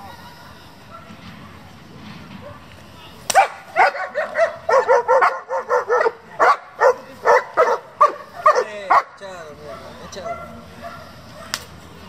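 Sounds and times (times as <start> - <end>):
dog barking rapidly: 3.4 - 11.6.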